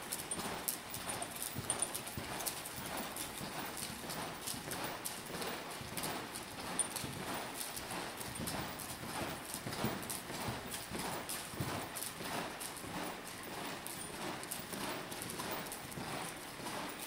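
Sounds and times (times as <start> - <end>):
horse hoofbeats on dirt: 0.0 - 17.0.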